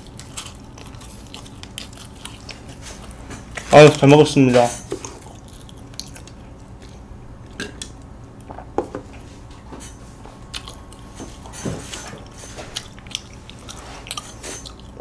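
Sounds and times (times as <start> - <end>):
mouth chewing: 0.0 - 3.7, 5.0 - 7.1, 10.4 - 15.0.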